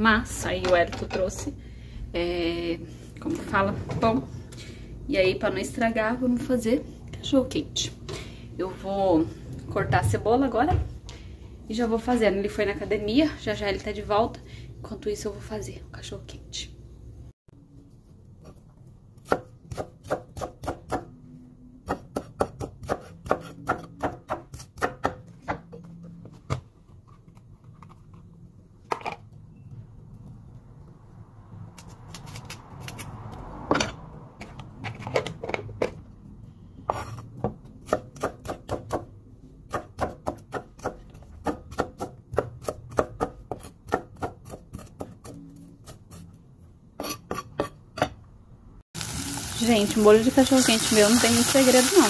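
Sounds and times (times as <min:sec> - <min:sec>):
knife chopping on wooden board: 0:19.2 - 0:21.1, 0:21.8 - 0:25.7, 0:39.7 - 0:46.0.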